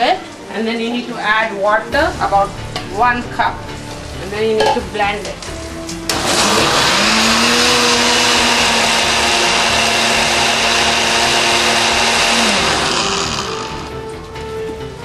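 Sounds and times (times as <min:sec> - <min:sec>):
liquid churning: 0:06.1 - 0:13.9
blender motor whining: 0:06.1 - 0:14.0.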